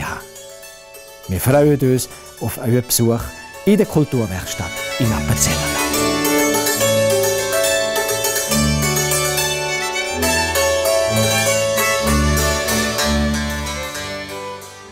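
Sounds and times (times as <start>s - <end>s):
hammered dulcimer: 0.0s - 14.9s
violin: 0.0s - 14.9s
bass line: 4.7s - 14.3s.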